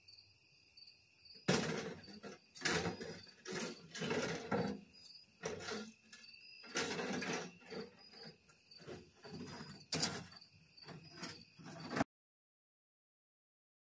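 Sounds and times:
faint insects chirping: 0:00.0 - 0:12.0
wheelbarrow rattling over rough ground: 0:01.5 - 0:12.0.

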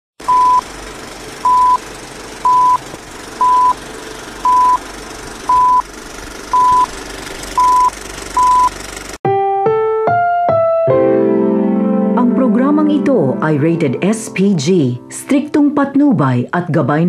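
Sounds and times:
short mid-pitched beeps: 0:02.5 - 0:02.8, 0:03.4 - 0:03.8, 0:04.5 - 0:04.8, 0:05.5 - 0:05.8, 0:06.6 - 0:06.9, 0:07.6 - 0:08.7.

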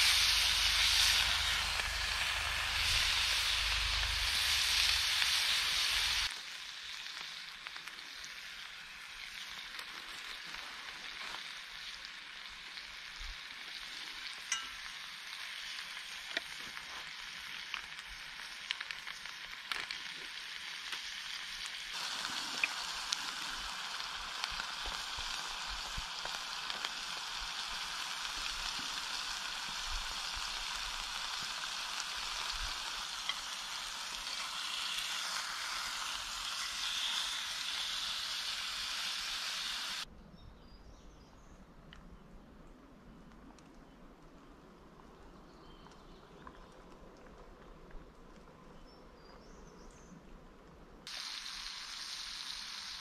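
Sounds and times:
patties sizzling in skillet: 0:00.0 - 0:40.1, 0:51.1 - 0:53.0.

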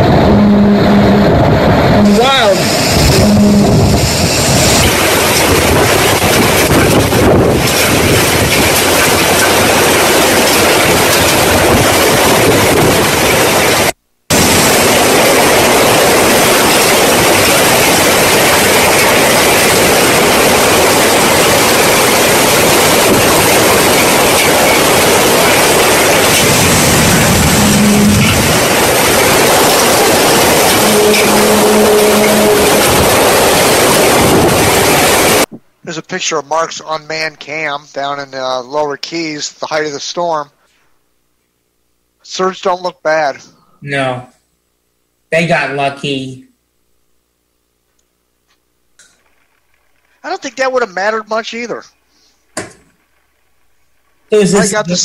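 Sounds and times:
low hum with higher overtone: 0:00.0 - 0:05.0
wind and driving rain on microphone: 0:00.0 - 0:35.6.

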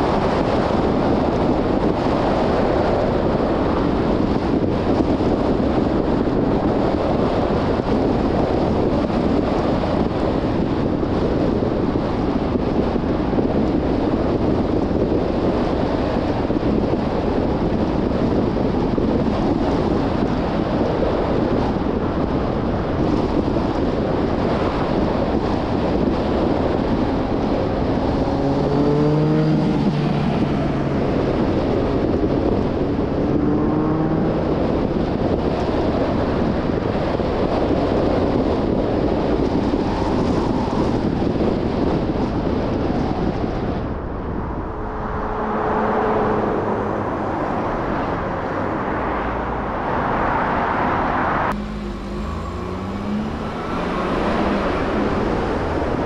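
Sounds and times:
car road and wind noise: 0:00.0 - 0:56.0
low engine note: 0:50.8 - 0:56.0.

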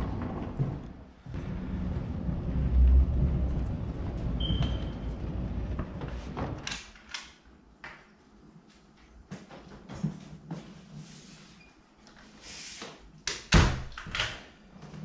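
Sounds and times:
low rumbling: 0:00.0 - 0:06.6.

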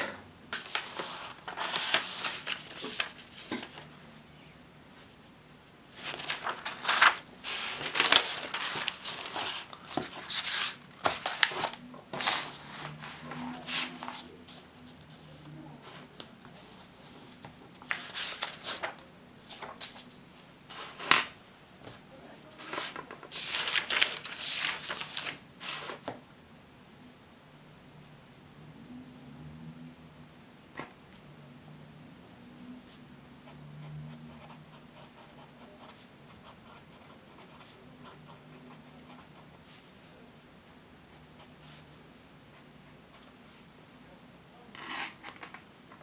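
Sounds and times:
paper rustling: 0:00.5 - 0:03.9, 0:06.0 - 0:14.6, 0:17.4 - 0:21.3, 0:22.5 - 0:26.1.

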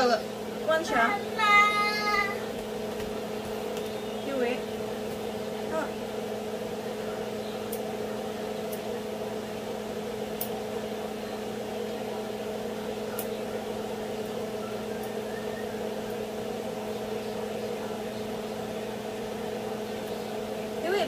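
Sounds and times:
kitchen appliance humming: 0:00.0 - 0:21.0.

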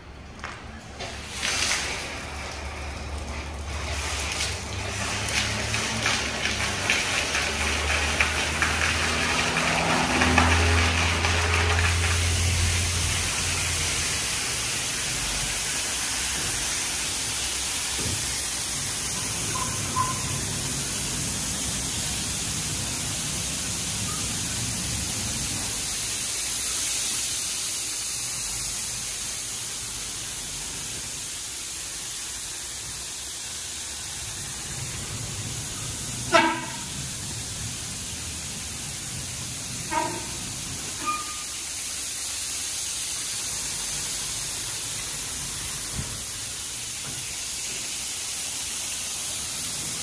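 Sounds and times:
car wash spray hissing: 0:00.4 - 0:50.0.

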